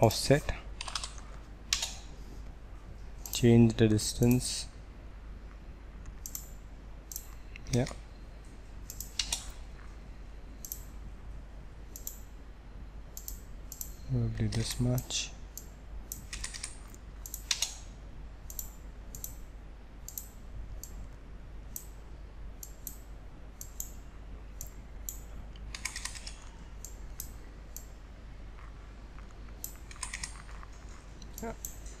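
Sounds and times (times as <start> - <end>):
faint low hum: 0.0 - 32.0
computer mouse clicks: 0.8 - 2.1, 6.0 - 6.5, 7.1 - 8.0, 8.8 - 9.6, 10.6 - 10.9, 11.9 - 12.3, 13.1 - 17.9, 18.5 - 19.4, 20.1 - 21.0, 22.6 - 23.0, 24.6 - 27.9, 29.5 - 32.0
keyboard keystrokes: 29.9 - 30.6.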